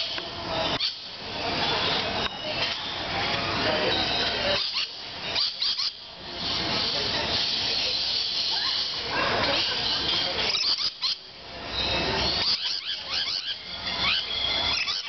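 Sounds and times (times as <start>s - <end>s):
lorikeets screeching and chattering: 0.0s - 15.0s.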